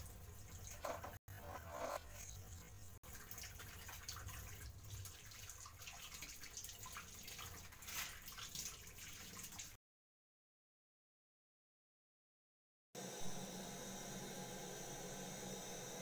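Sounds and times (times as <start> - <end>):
water splashing and dripping: 0.0 - 1.0, 2.2 - 9.8.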